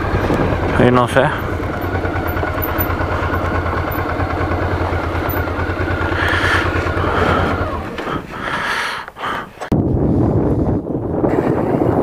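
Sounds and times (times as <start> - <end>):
motorcycle engine idling: 0.0 - 9.2.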